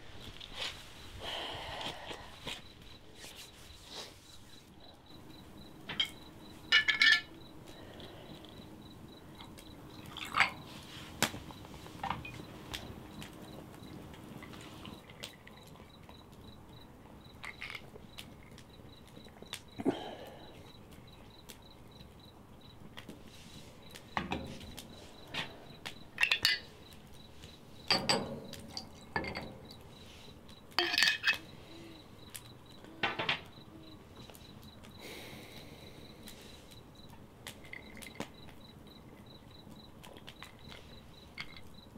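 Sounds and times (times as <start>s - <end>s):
crickets chirping: 0.0s - 41.9s
ice in a tumbler: 4.9s - 22.1s, 23.8s - 33.3s, 37.4s - 41.9s
sharp clinks and knocks: 5.7s - 8.7s, 24.1s - 29.9s, 30.6s - 31.5s, 40.0s - 41.9s
glassware clinking: 5.9s - 7.4s, 26.2s - 26.7s, 27.9s - 29.8s, 30.8s - 31.5s.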